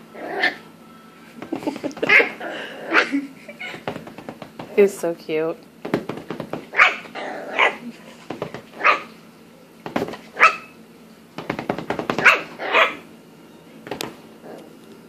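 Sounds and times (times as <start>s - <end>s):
puppy barking: 2.0s - 3.2s, 6.7s - 7.9s, 8.8s - 9.2s, 10.3s - 10.8s, 12.2s - 13.1s.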